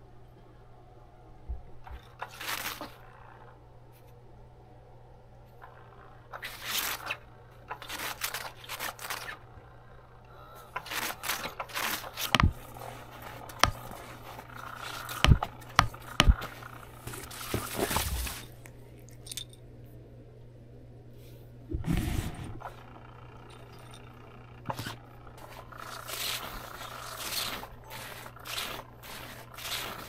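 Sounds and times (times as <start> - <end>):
crinkly fabric rustling and scraping: 2.0 - 3.3, 6.4 - 9.4, 10.8 - 19.4, 24.7 - 30.0.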